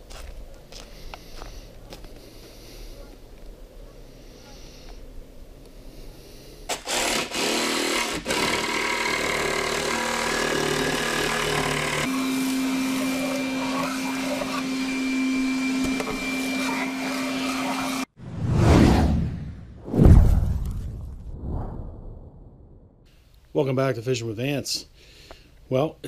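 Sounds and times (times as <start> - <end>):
jigsaw cutting plywood: 6.7 - 18.1
vacuum cleaner humming: 12.0 - 18.1.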